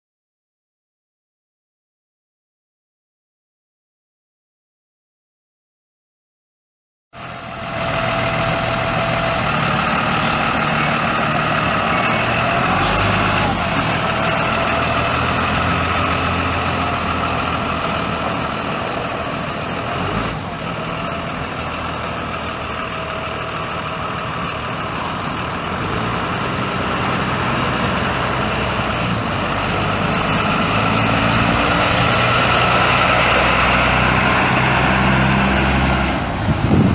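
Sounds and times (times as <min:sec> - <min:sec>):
diesel bus engine running: 0:07.2 - 0:36.9.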